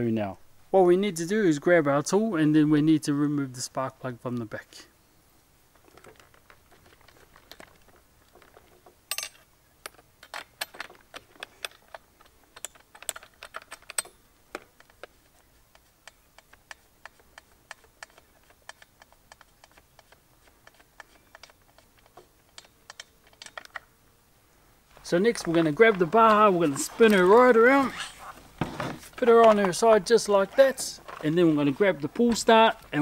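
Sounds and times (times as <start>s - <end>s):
socket tool clicking: 15.7s - 23.9s.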